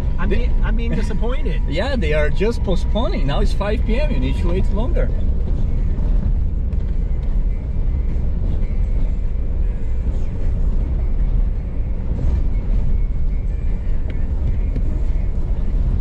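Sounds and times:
vehicle engine and road noise: 0.0 - 16.0.

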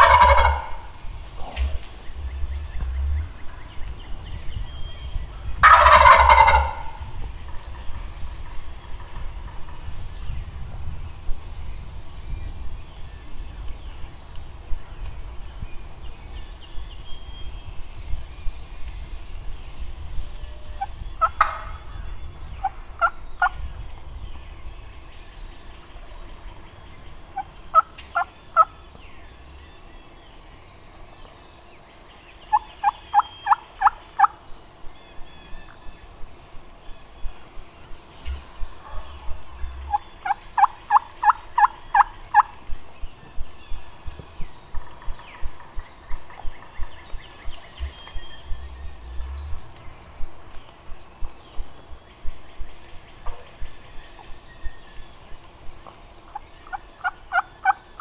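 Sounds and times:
turkey gobbling: 0.0 - 10.0, 21.2 - 21.8, 22.6 - 23.5, 27.4 - 28.7, 32.5 - 51.8, 57.0 - 58.0.

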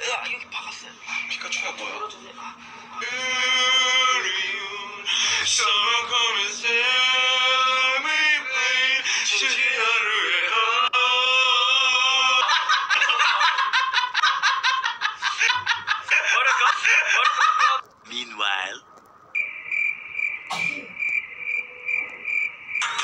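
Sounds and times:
young man singing held notes: 2.8 - 12.6
hearty laughter: 12.0 - 17.8.

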